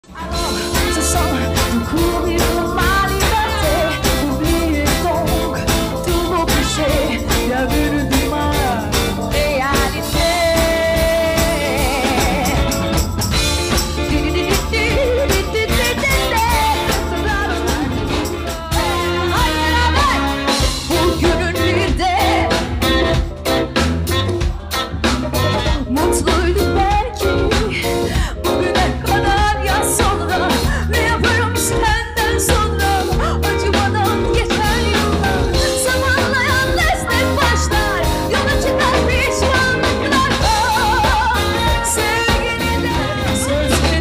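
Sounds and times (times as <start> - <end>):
woman singing: 0.0 - 23.3, 24.1 - 44.0
bass guitar: 0.0 - 44.0
guitar: 0.0 - 44.0
drum beat: 0.2 - 26.2.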